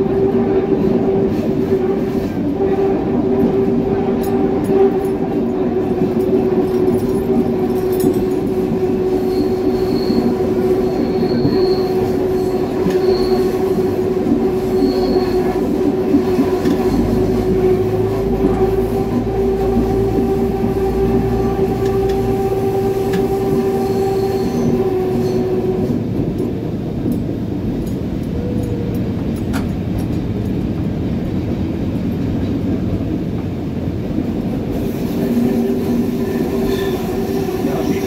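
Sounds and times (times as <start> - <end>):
high wheel squeals: 6.7 - 17.9, 18.7 - 26.0, 34.9 - 38.0
diesel engine drone: 12.3 - 37.5.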